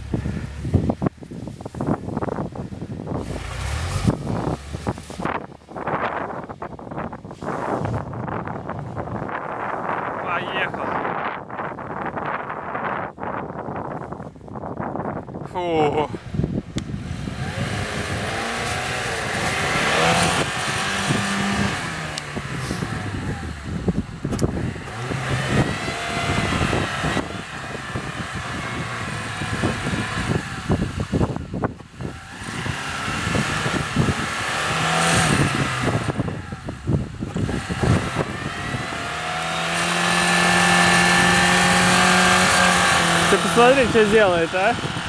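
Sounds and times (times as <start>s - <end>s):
car engine revving: 3.0s - 6.7s, 16.8s - 45.0s.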